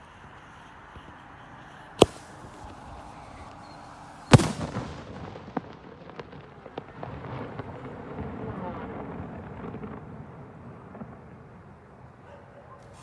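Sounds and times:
firework bursting overhead: 0:00.0 - 0:12.1
scattered firework cracks: 0:00.1 - 0:12.0
firework launch bang: 0:02.0 - 0:03.5, 0:04.2 - 0:07.8.

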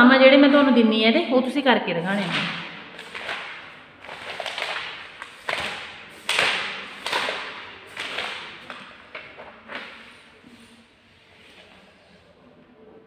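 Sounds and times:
paper pages flipping: 0:02.1 - 0:11.9.

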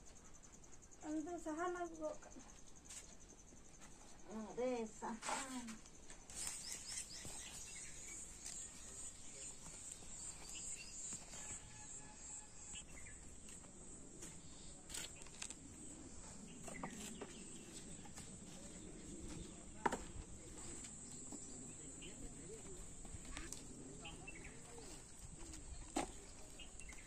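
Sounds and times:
birds chirping: 0:06.2 - 0:27.0.

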